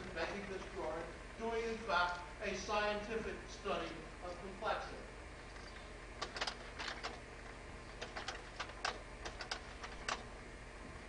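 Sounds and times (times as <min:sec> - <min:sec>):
low electrical hum: 0:00.0 - 0:11.0
sharp irregular clicks and taps: 0:05.5 - 0:07.2, 0:08.0 - 0:10.3.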